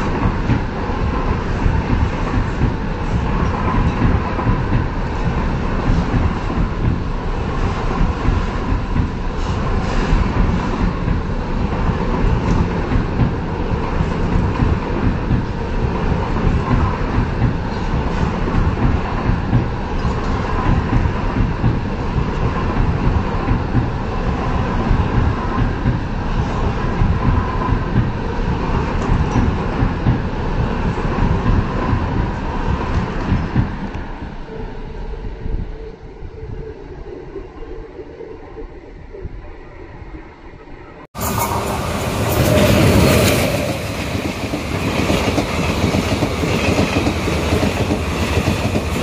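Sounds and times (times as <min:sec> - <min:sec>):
train wheels clattering on rails: 0:00.0 - 0:34.1, 0:41.2 - 0:49.0.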